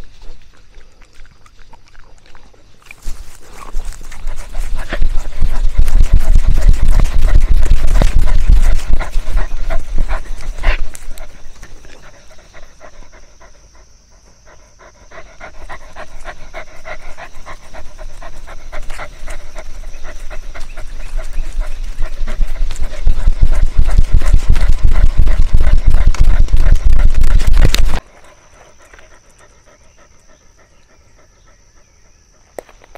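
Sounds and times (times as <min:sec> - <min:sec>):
dog panting fast: 0:03.4 - 0:32.5
heavy low rumble: 0:03.8 - 0:12.7, 0:15.5 - 0:28.0.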